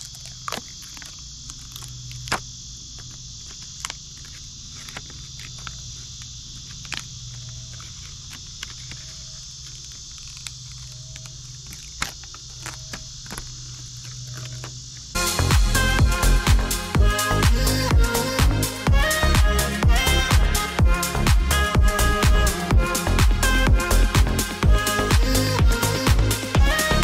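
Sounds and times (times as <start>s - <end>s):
tape peeling clicks and ticks: 0.0s - 15.1s
crickets chirping: 0.0s - 27.0s.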